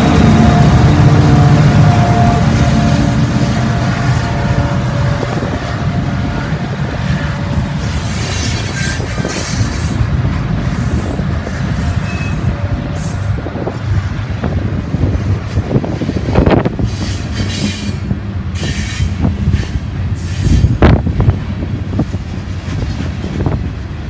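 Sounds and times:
freight train wheels rumbling: 0.0s - 24.0s
high wheel squeals: 7.0s - 10.0s, 10.8s - 13.2s.

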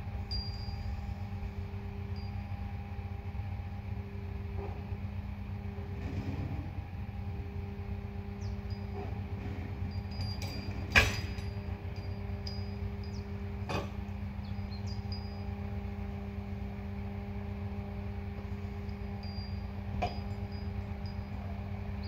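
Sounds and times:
crane motor humming: 0.0s - 22.0s
sharp metal clanks: 8.7s - 14.0s.

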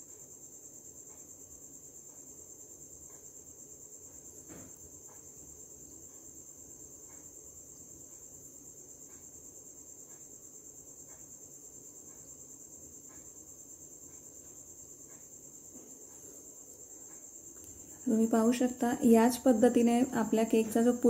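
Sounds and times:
insect trill: 0.0s - 21.0s
soft ticks: 1.0s - 21.0s
knock: 4.4s - 4.8s.

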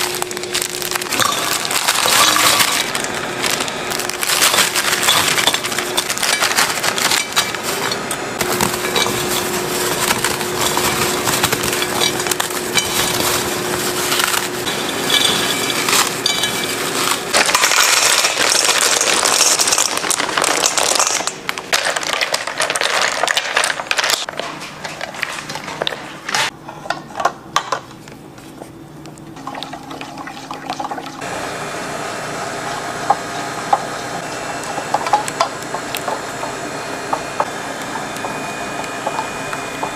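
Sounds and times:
chocolate discs clinking: 0.0s - 24.3s.

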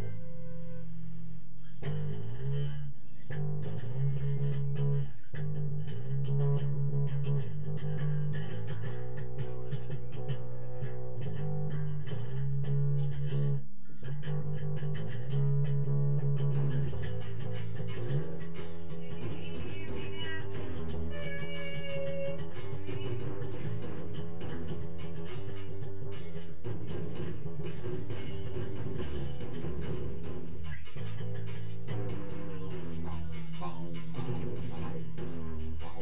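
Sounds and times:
low bass line: 0.0s - 36.0s.

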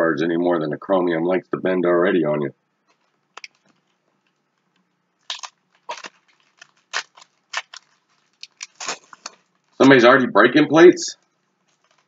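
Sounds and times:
foil wrapper crinkling and tearing: 2.9s - 10.1s, 11.2s - 12.0s.

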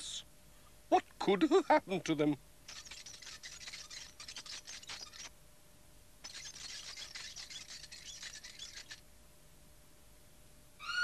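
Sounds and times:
bicycle freewheel ticking: 2.7s - 5.3s, 6.2s - 9.0s.

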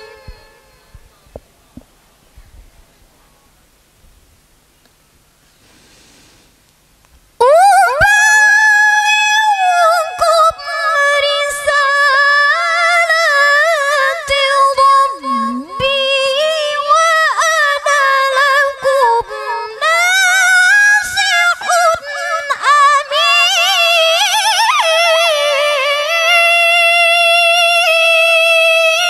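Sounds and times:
woman reciting melodically: 0.0s - 1.0s, 7.4s - 29.0s.

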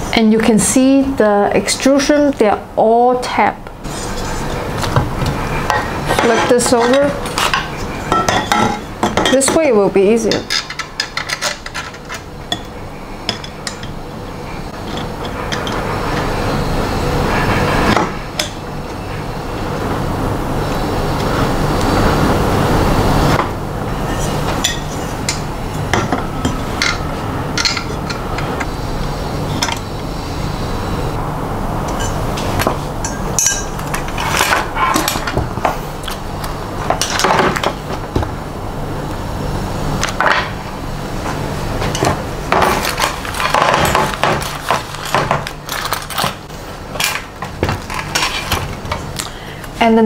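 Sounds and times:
steady low hum: 0.0s - 50.0s
loud steady rushing noise: 14.1s - 34.1s.

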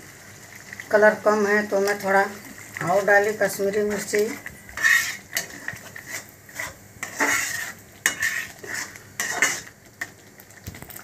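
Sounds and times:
spatula scraping metal pan: 3.8s - 9.8s.

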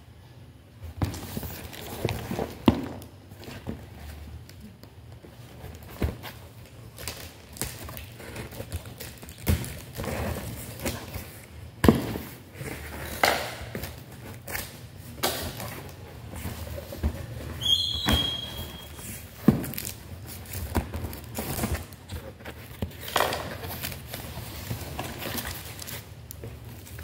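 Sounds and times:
packing tape pulled off cardboard: 5.4s - 27.0s
cardboard rustling and knocking: 7.7s - 14.5s, 15.2s - 27.0s
brief high squeak: 17.6s - 19.0s.

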